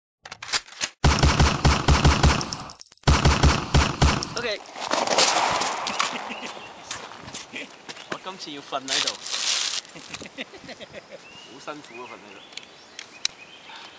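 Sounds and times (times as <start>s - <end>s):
automatic gunfire bursts: 1.0s - 4.6s
gunfire rumble: 1.0s - 6.3s.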